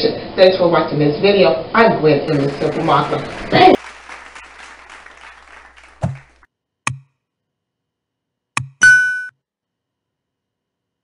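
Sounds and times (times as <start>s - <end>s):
applause: 2.3s - 6.5s.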